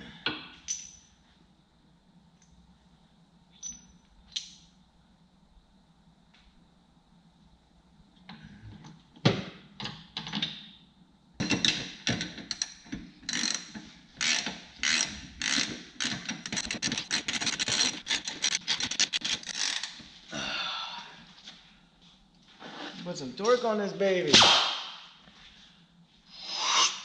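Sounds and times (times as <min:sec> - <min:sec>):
ratchet wrench clicking: 0:12.5 - 0:20.0.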